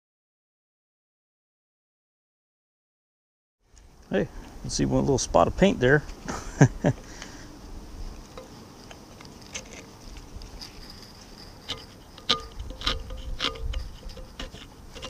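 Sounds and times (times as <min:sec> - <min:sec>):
faint steady buzz: 0:03.6 - 0:15.0.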